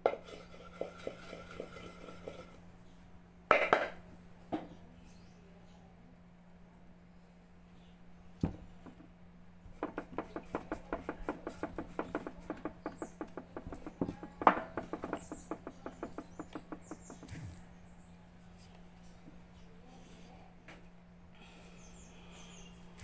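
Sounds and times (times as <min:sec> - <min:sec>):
pestle pounding in wooden mortar: 0:09.6 - 0:17.3.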